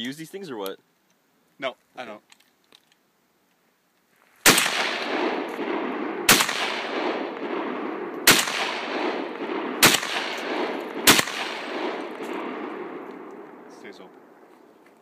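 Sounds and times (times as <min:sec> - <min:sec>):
rifle shots with echo: 0:04.4 - 0:14.4.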